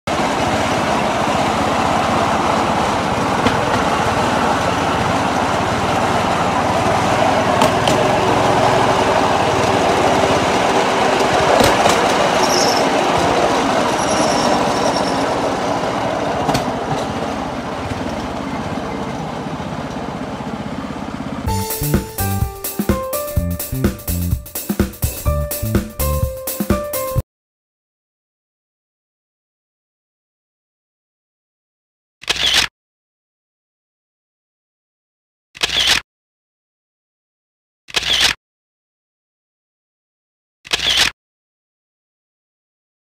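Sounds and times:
rail trolley engine and wheels: 0:00.1 - 0:27.2.

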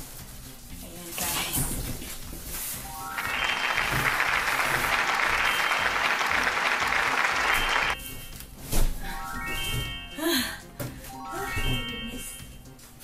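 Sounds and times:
applause: 0:03.1 - 0:08.0.

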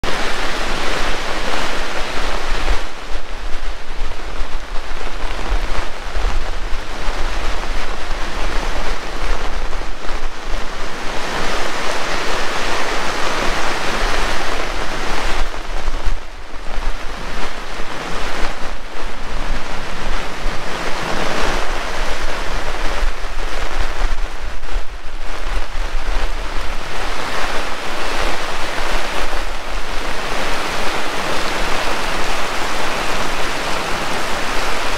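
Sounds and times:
heavy rain pouring: 0:00.0 - 0:34.9
wind rumble on microphone: 0:00.0 - 0:34.9.

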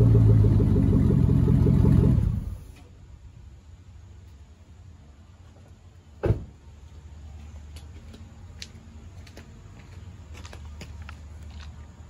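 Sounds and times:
engine idling exhaust rumble: 0:00.0 - 0:12.0
loud thump: 0:06.2 - 0:06.6.

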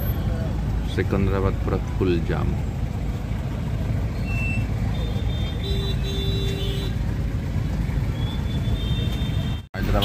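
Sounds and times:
engine and road rumble: 0:00.0 - 0:10.0
car horn beeping: 0:04.2 - 0:07.0, 0:08.5 - 0:10.0.

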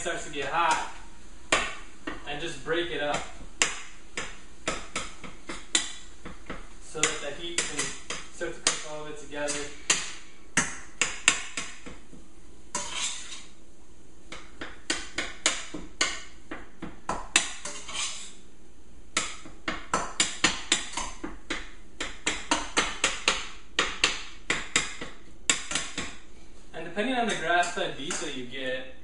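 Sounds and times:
utensil tapping and scraping skillet: 0:03.1 - 0:13.6, 0:14.3 - 0:18.4, 0:19.2 - 0:26.3, 0:27.0 - 0:28.5.

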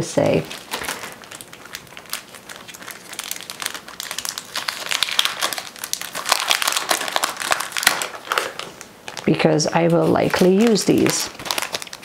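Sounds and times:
plastic packaging crinkling: 0:00.0 - 0:12.0
paper rustling: 0:09.8 - 0:12.0.

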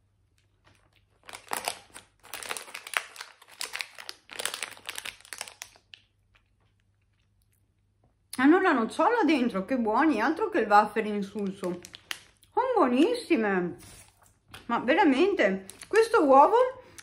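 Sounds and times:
wrapper crinkling: 0:00.3 - 0:07.4, 0:11.2 - 0:12.5, 0:15.7 - 0:16.2.

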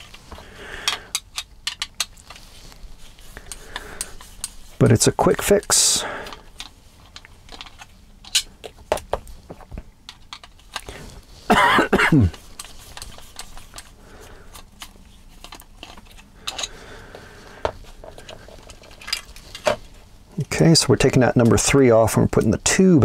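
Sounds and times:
plastic parts handled: 0:00.0 - 0:11.6, 0:12.2 - 0:20.5
person coughing: 0:11.5 - 0:12.4.

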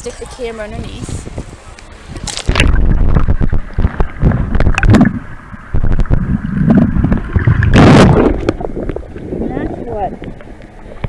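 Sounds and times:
muffled underwater sloshing: 0:00.0 - 0:11.0
low rumble: 0:00.8 - 0:11.0.

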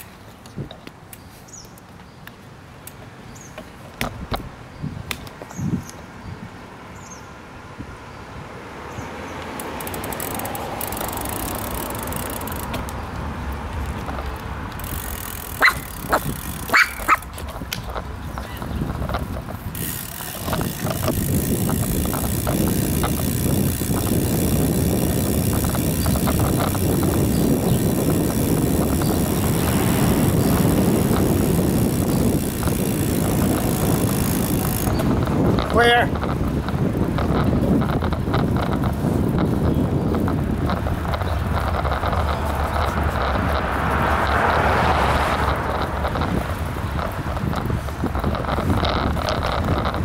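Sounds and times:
bicycle tyre rumble on pavement: 0:00.0 - 0:50.0
wind on microphone: 0:04.0 - 0:06.6, 0:13.8 - 0:50.0.

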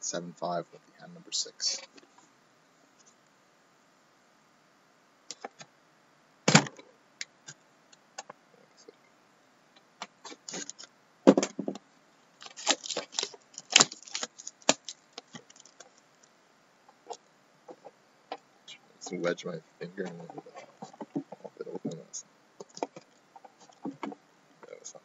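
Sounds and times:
knocks on cardboard box: 0:11.3 - 0:11.8
plastic wrap crinkling: 0:12.4 - 0:16.3.

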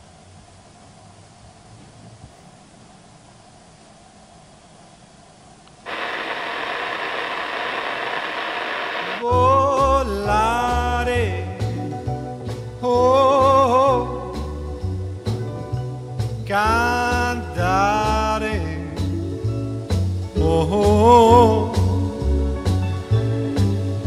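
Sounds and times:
faint hiss: 0:00.0 - 0:24.0
steady rushing noise: 0:05.9 - 0:09.3
song with singing voice and bass: 0:09.1 - 0:24.0.

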